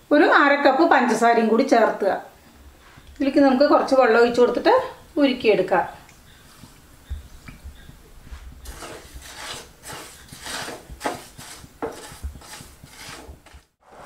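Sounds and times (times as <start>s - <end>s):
spatula scraping sugar in pan: 8.6s - 14.0s.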